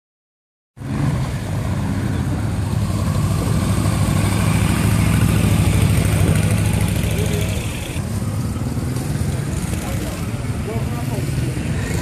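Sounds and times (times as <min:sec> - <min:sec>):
motorcycle engine rumbling past: 0:00.8 - 0:12.0.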